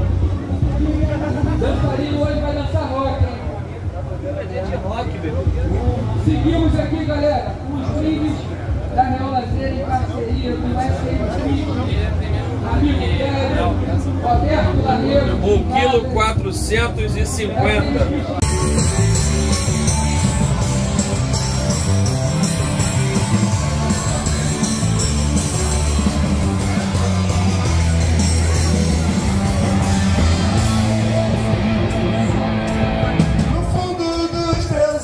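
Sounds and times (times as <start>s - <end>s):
live rock band playing: 16.4s - 35.0s.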